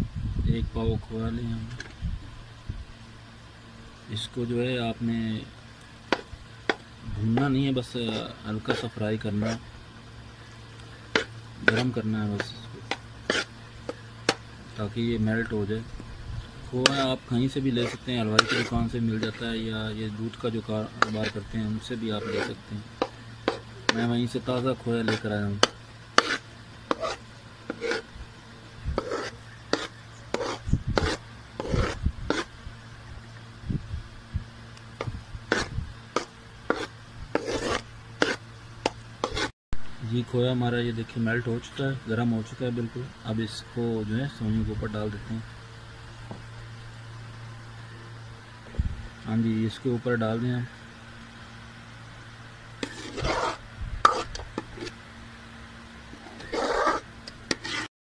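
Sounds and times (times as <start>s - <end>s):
steady low hum: 0.0s - 57.9s
metal ladle scraping metal pan: 11.0s - 14.4s, 16.8s - 19.5s, 22.1s - 28.0s, 29.0s - 32.5s, 52.8s - 55.0s, 56.2s - 57.9s.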